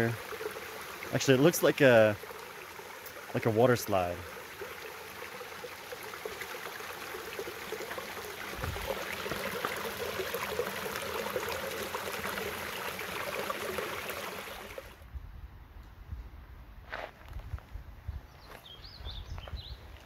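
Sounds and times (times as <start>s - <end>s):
creek water rushing: 0.0s - 15.0s.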